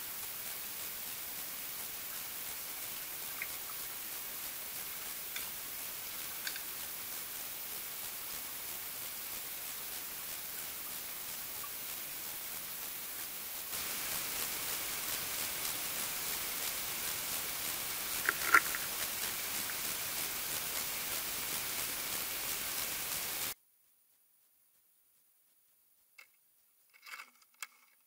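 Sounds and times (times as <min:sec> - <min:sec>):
underwater hiss: 0:00.0 - 0:23.6.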